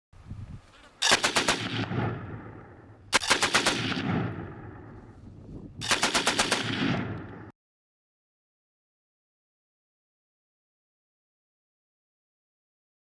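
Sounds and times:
machine gun firing bursts: 1.0s - 4.7s, 5.8s - 7.5s.

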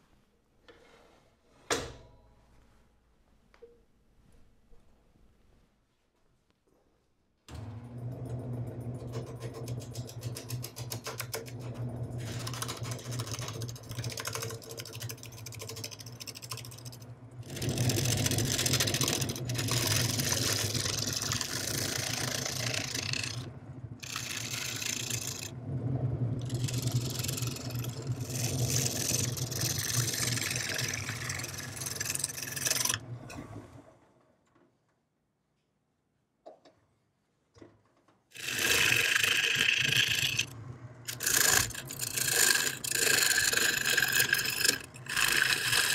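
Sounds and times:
lathe motor hum: 11.5s - 33.0s, 38.4s - 40.5s, 41.1s - 45.9s
gouge cutting wood: 15.9s - 25.5s, 26.4s - 33.0s, 38.4s - 40.5s, 41.1s - 45.9s.

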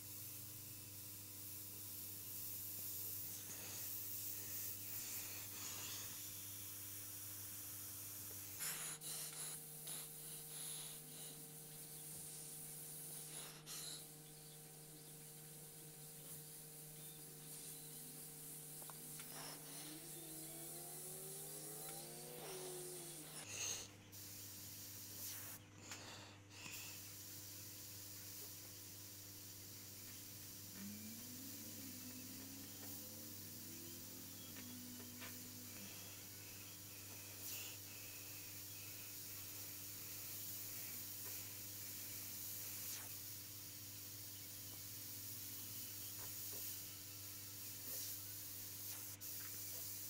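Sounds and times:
airbrush air hiss: 0.0s - 50.0s
low hum: 29.6s - 38.2s.

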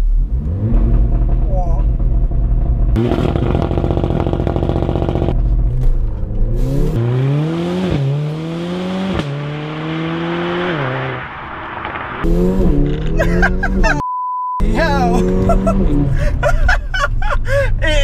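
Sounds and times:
car engine revving and accelerating: 0.2s - 1.6s, 2.9s - 14.0s, 14.6s - 16.3s.

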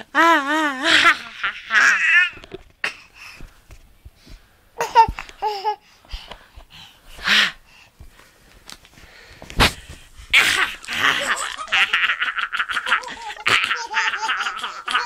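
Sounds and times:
baby laughing: 0.8s - 2.4s, 4.8s - 5.8s, 10.4s - 15.0s.

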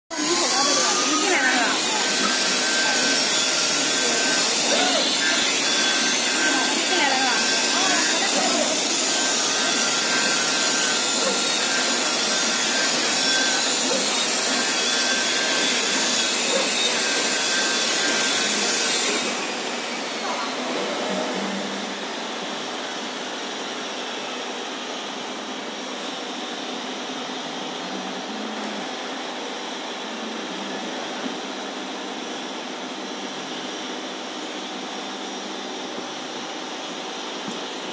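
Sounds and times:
fabric cutting machine rushing: 0.1s - 23.2s.

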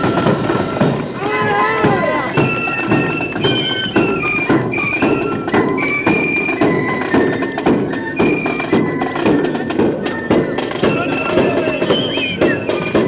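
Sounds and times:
flutes playing march melody: 0.0s - 13.0s
side drums beating: 0.0s - 13.0s.

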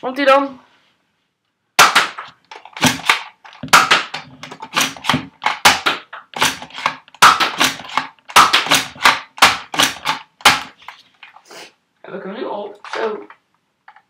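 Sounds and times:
toy dart blaster clacks and pops: 1.8s - 10.8s.

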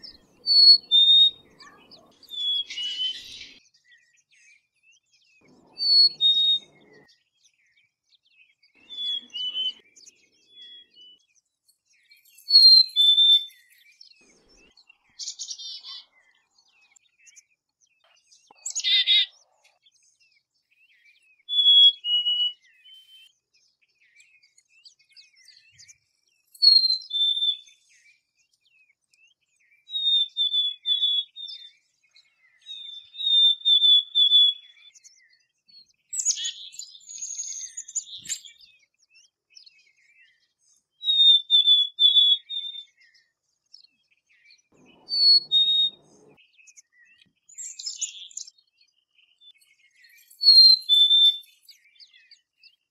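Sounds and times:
chickadee whistled calls: 0.0s - 4.0s, 5.4s - 7.1s, 8.7s - 11.2s, 12.2s - 16.9s, 20.9s - 23.3s, 25.4s - 28.1s, 29.7s - 35.2s, 36.1s - 38.9s, 41.0s - 43.4s, 44.2s - 48.6s, 49.3s - 52.5s
harsh noisy bird call: 44.8s - 46.4s.

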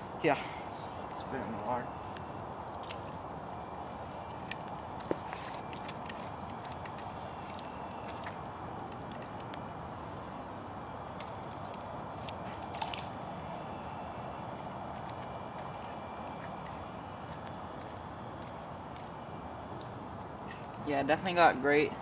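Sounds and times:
crickets trilling: 0.0s - 22.0s.

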